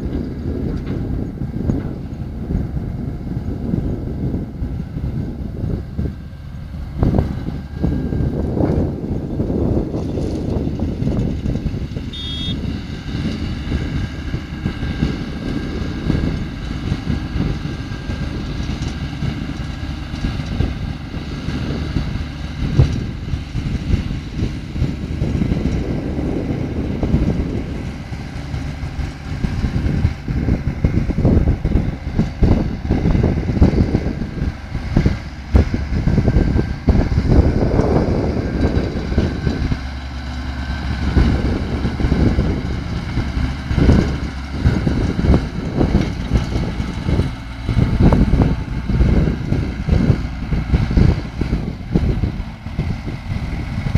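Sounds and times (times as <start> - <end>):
tractor engines running: 0.0 - 53.9
wind buffeting microphone: 0.0 - 53.9
potato harvester running: 3.6 - 53.9.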